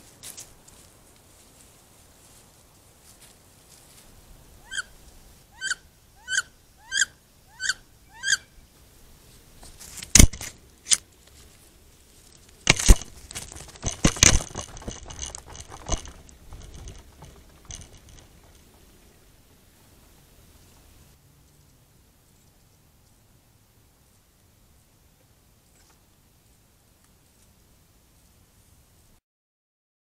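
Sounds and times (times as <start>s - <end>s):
crackling and rustling: 0.0s - 4.2s, 9.3s - 19.6s
sharp clicks: 10.1s - 11.0s, 12.7s - 18.6s.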